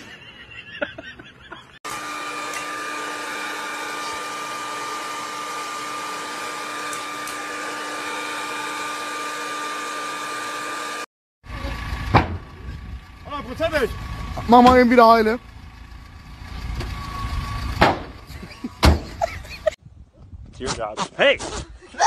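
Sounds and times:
hair dryer running: 0:01.9 - 0:11.1.

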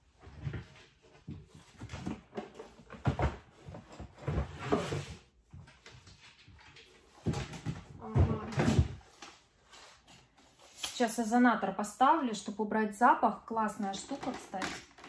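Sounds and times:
rummaging knocks and rustles: 0:00.0 - 0:10.8.

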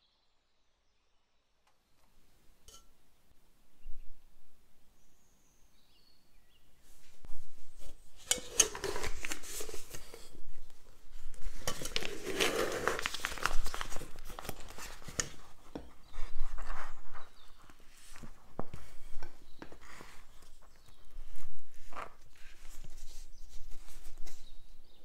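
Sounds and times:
plastic bag rustling and crinkling: 0:07.0 - 0:24.6.

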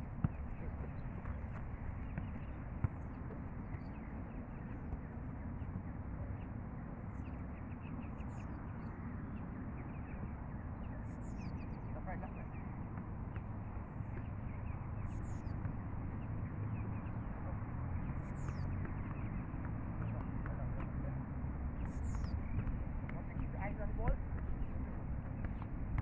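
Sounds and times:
football being kicked: 0:00.1 - 0:05.1, 0:21.8 - 0:26.0
faint bird chirps: 0:10.9 - 0:12.7, 0:14.0 - 0:15.6, 0:16.2 - 0:20.4, 0:21.7 - 0:22.6
steady low rumble: 0:21.3 - 0:26.0.

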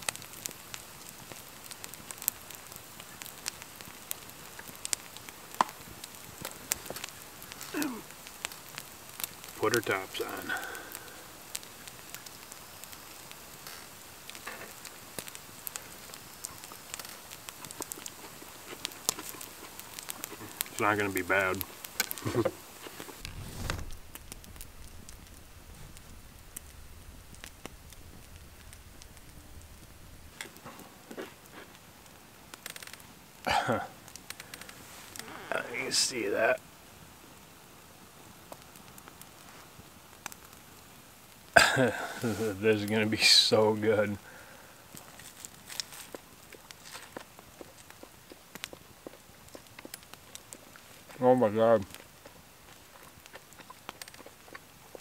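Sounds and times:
campfire crackling and popping: 0:00.0 - 0:55.0
faint hiss: 0:00.0 - 0:55.0
soft rustle: 0:13.2 - 0:33.1, 0:34.1 - 0:36.4, 0:38.5 - 0:40.4, 0:41.9 - 0:44.2, 0:44.8 - 0:55.0
low background rumble: 0:23.2 - 0:31.1.

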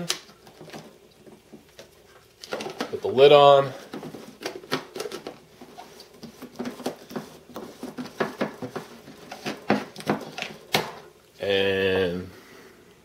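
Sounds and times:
plastic lid being screwed on: 0:03.8 - 0:11.0.

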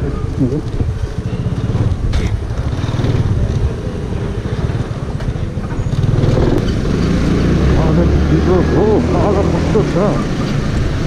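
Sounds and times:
scooter engine pulsing rumble: 0:00.0 - 0:11.0.

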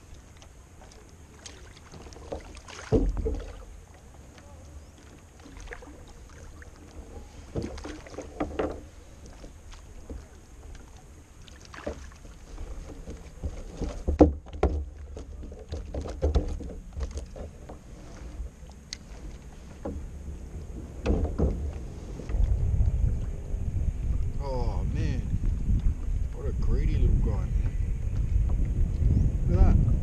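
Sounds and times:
fishing gear knocks and rattles: 0:12.7 - 0:17.8
steady low rumble: 0:16.7 - 0:30.0.

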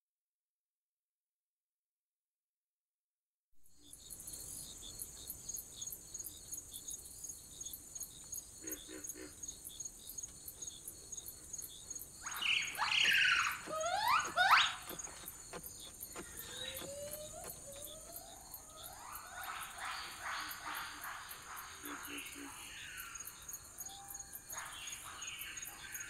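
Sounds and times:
insects buzzing and chirping: 0:03.6 - 0:26.0
animal calls swooping in pitch: 0:12.3 - 0:15.3, 0:16.2 - 0:19.7.

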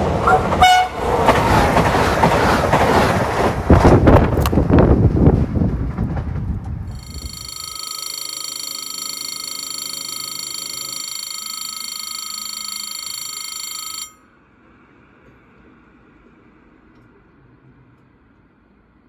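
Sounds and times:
level crossing bell ringing: 0:06.9 - 0:14.2.

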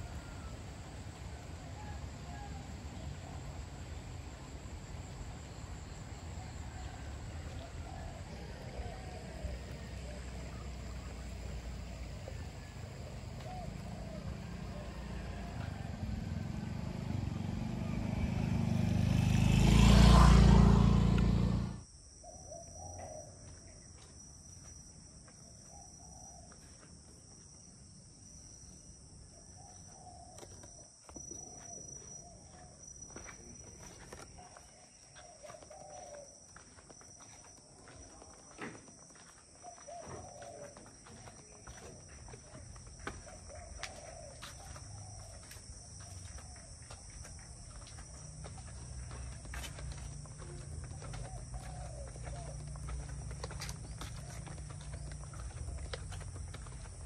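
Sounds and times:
motor vehicle approaching: 0:00.0 - 0:21.9, 0:31.4 - 0:57.0
bird calls: 0:06.7 - 0:16.5, 0:29.4 - 0:36.8, 0:39.5 - 0:57.0.

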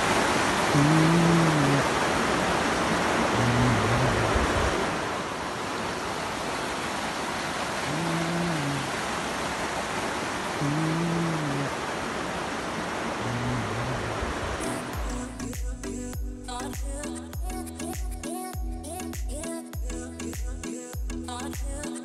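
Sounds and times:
river rushing over stones: 0:00.0 - 0:15.8.

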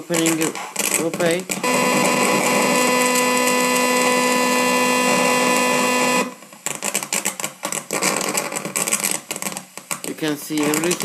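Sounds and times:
rapid electronic crackling and clicking: 0:00.0 - 0:11.0
electronic buzz of fixed tones: 0:01.6 - 0:06.4.

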